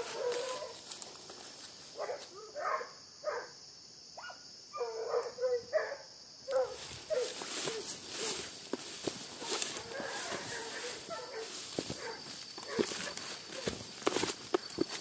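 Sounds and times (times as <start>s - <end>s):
hunting dog baying: 0.0s - 0.8s, 4.2s - 8.4s, 9.3s - 13.8s.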